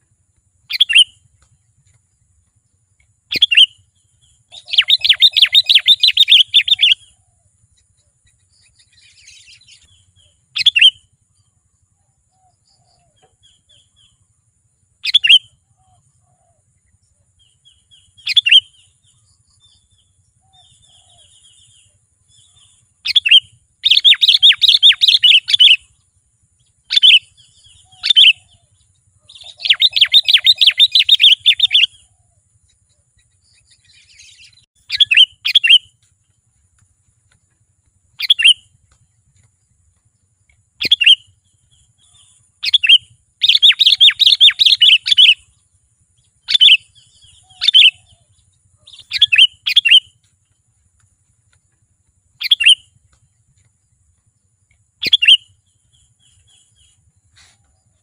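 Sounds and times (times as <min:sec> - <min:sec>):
faint bird calls: 0:00.0 - 0:58.0
bird whistled notes: 0:00.7 - 0:01.2, 0:03.3 - 0:03.9, 0:04.5 - 0:07.2, 0:08.8 - 0:11.1, 0:15.0 - 0:16.4, 0:18.0 - 0:18.9, 0:22.4 - 0:25.9, 0:29.3 - 0:32.1, 0:33.8 - 0:35.9, 0:38.2 - 0:38.7, 0:40.8 - 0:41.4, 0:42.0 - 0:45.4, 0:46.4 - 0:48.2, 0:48.9 - 0:50.2, 0:52.4 - 0:52.9, 0:55.0 - 0:57.6
bird chattering bursts: 0:04.5 - 0:07.0, 0:29.3 - 0:31.9.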